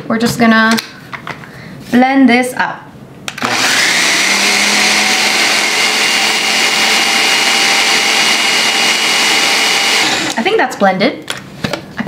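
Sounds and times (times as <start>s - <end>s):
food processor whirring: 3.3s - 10.4s.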